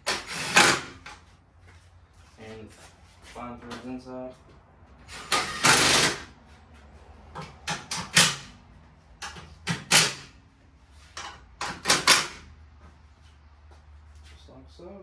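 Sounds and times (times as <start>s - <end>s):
cordless drill driving screws: 5.1s - 6.2s.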